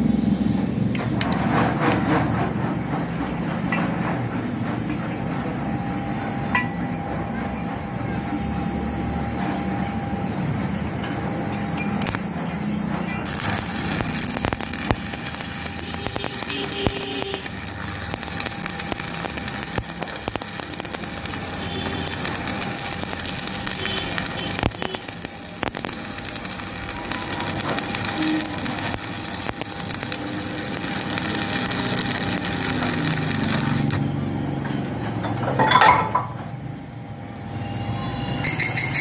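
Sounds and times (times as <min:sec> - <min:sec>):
welding arc crackling: 0:11.1 - 0:34.4.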